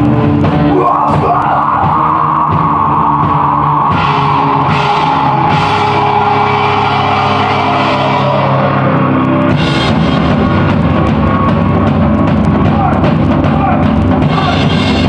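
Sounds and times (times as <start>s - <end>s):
distorted electric guitars: 0.0s - 15.0s
drum kit with cymbal crashes: 9.5s - 15.0s.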